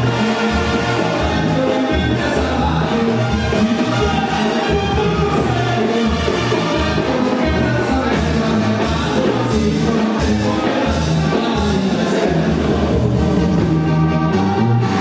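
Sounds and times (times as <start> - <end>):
brass band playing: 0.0 - 15.0
man singing: 0.0 - 15.0.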